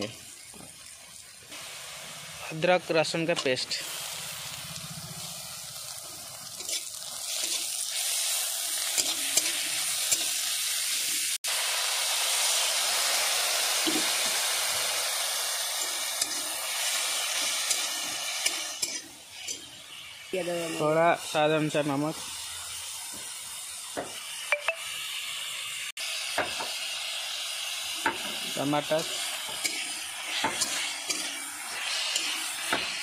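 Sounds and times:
onions sizzling in hot oil: 0.0s - 33.0s
paste poured into hot oil: 3.4s - 18.7s, 27.1s - 33.0s.

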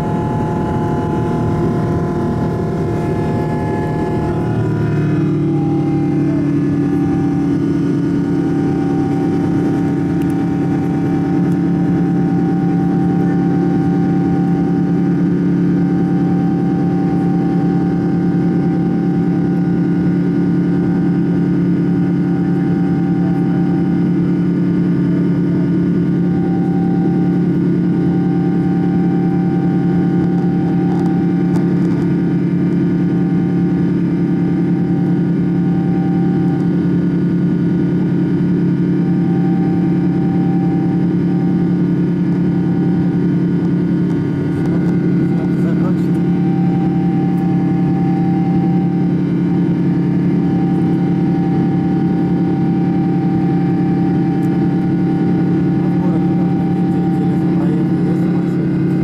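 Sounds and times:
airliner engines droning: 0.0s - 59.0s
high engine whine: 0.0s - 59.0s.

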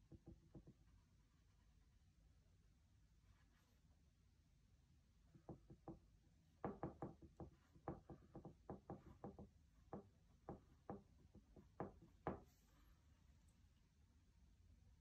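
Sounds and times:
paintbrush tapping on canvas: 0.1s - 0.8s, 5.3s - 6.0s, 6.6s - 12.6s.

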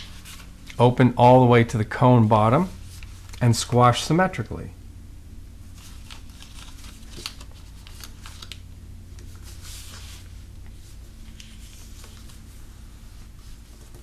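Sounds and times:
paper rustling and crinkling: 0.0s - 0.8s, 5.7s - 8.6s, 9.2s - 14.0s
steady low hum: 0.0s - 14.0s
paper crease clicks: 5.8s - 8.6s.

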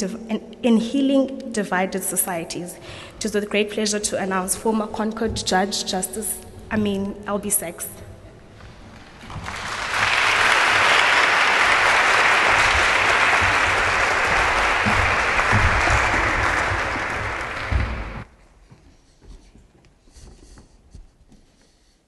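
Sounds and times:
audience applauding: 9.0s - 18.2s.

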